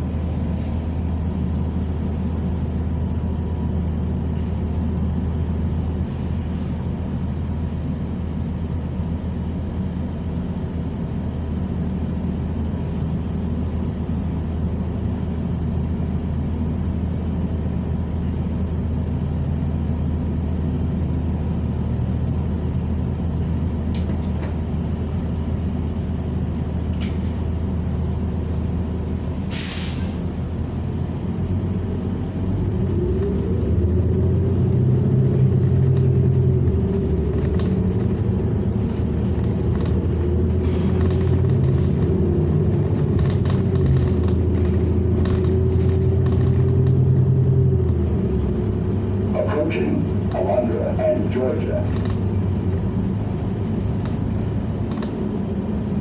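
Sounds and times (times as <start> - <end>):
bus engine drone: 0.0 - 56.0
sharp air hiss: 29.5 - 30.2.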